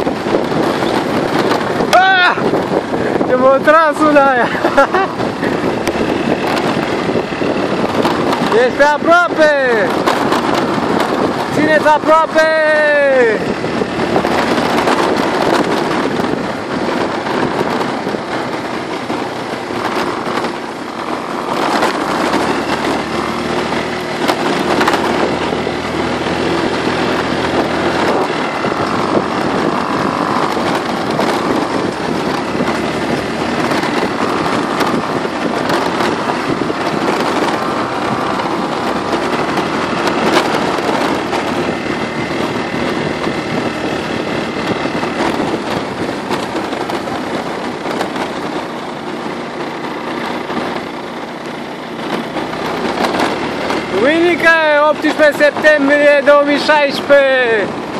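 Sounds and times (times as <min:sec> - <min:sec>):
motor scooter engine running: 0:00.0 - 0:57.9
wind noise on microphone: 0:00.0 - 0:57.9.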